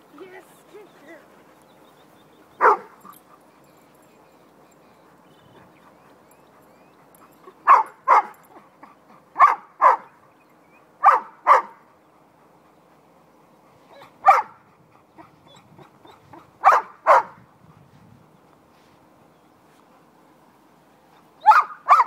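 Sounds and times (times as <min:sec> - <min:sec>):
puppy barking: 0:02.6 - 0:03.0, 0:07.6 - 0:08.4, 0:09.4 - 0:10.1, 0:11.0 - 0:11.8, 0:14.0 - 0:14.6, 0:16.6 - 0:17.4, 0:21.4 - 0:22.0.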